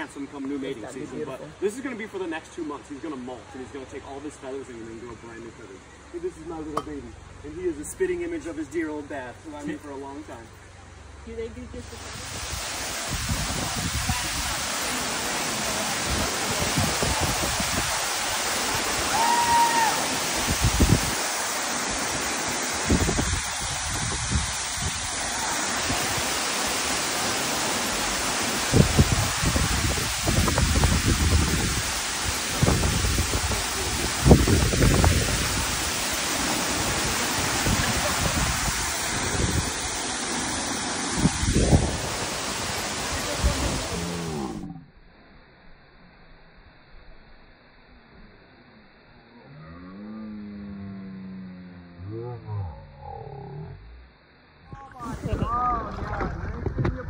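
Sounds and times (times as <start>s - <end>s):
waterfall rushing: 11.8s - 44.7s
low rumbles: 49.2s - 57.0s.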